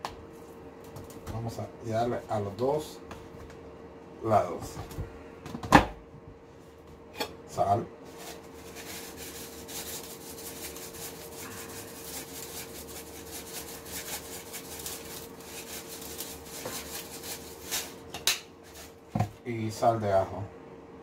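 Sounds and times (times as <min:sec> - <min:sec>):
faint steady hum: 0:00.0 - 0:21.0
salt grains pattering on meat: 0:08.6 - 0:18.0.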